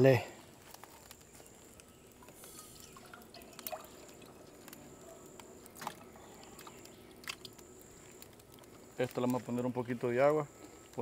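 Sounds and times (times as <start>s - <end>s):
faint dripping liquid: 0.8s - 9.3s.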